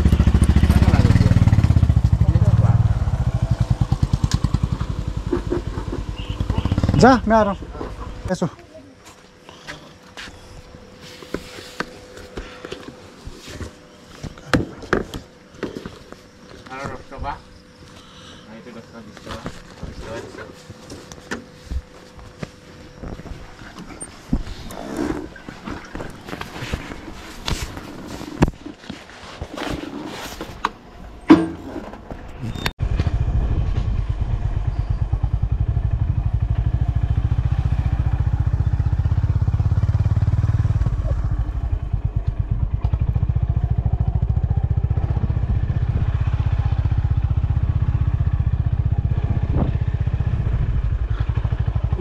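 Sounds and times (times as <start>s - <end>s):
motorcycle engine running: 0.0s - 8.5s, 32.8s - 52.0s
knocks and clatter: 3.9s - 7.0s.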